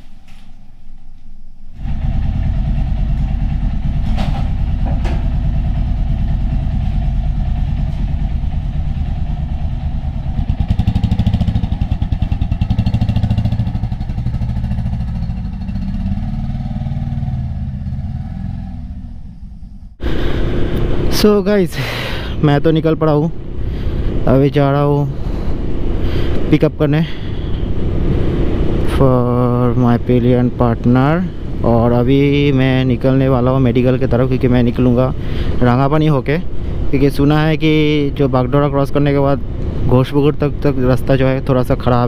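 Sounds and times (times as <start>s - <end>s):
motorcycle engine running: 1.7s - 21.2s.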